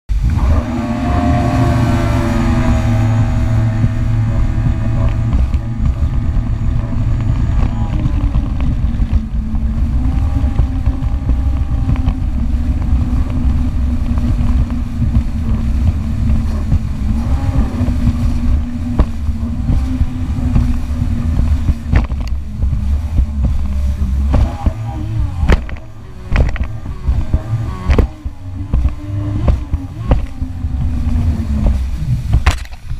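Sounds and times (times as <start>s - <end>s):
water rushing: 0.1s - 32.9s
watercraft engine running: 0.1s - 32.9s
wind: 0.1s - 32.9s.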